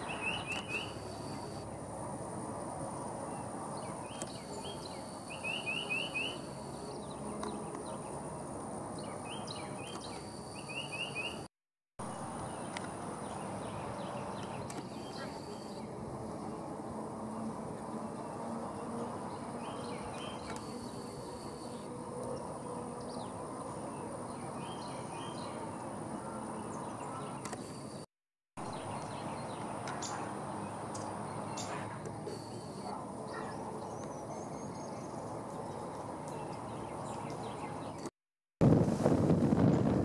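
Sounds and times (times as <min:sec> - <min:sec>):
small birds chirping: 0:00.0 - 0:01.6.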